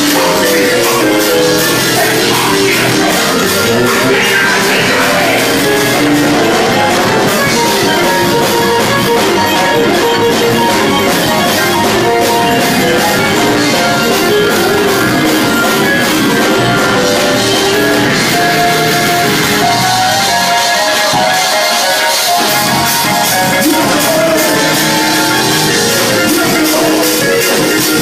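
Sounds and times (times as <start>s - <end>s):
drum kit with cymbals: 0.0s - 28.0s
electric bass guitar: 0.0s - 28.0s
keyboards: 0.0s - 28.0s.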